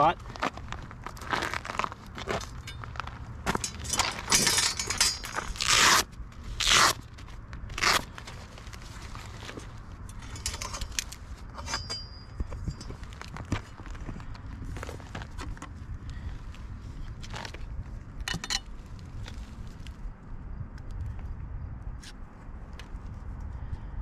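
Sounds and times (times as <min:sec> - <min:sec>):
fabric rustling and scraping: 0:00.1 - 0:18.0.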